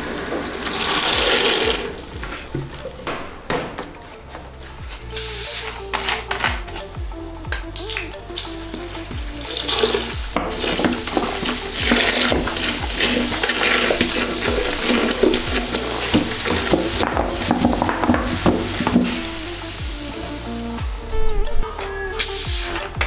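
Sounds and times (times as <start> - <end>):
soda pouring and fizzing: 0.0 - 2.2, 8.3 - 20.6
background music: 0.0 - 23.0.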